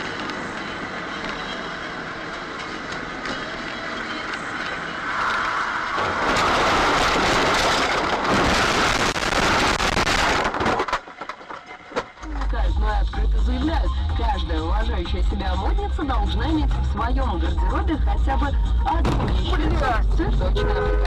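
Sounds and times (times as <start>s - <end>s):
car cabin rumble: 12.3s - 21.0s.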